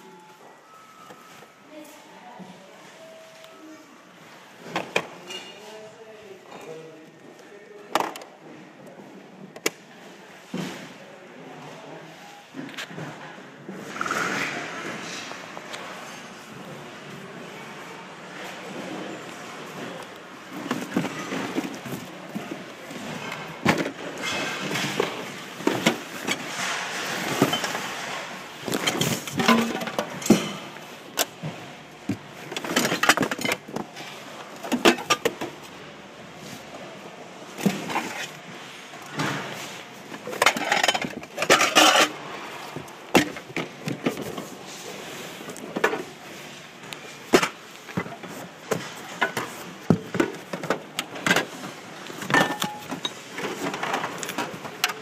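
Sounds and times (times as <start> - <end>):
rustling of items pushed aside: 18.3 - 35.6
household items clattering: 19.6 - 35.6, 39.1 - 46.2, 47.2 - 55.0.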